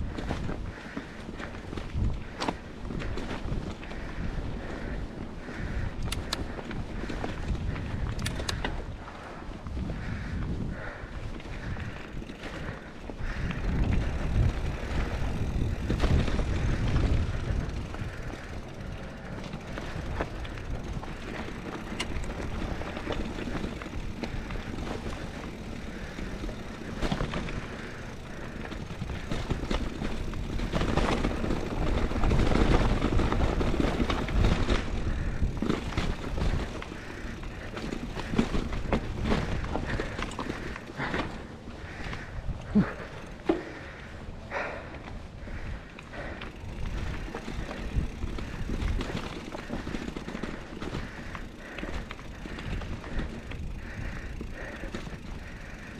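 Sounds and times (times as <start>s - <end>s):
bike rattling and clicking: 0.0s - 55.9s
tyres crunching over dirt and stones: 10.1s - 43.8s, 45.0s - 55.9s.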